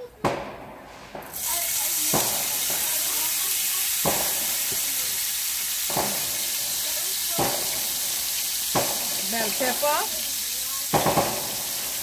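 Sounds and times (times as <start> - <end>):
corn sizzling in hot oil: 1.3 - 12.0
sharp knocks: 8.8 - 9.2.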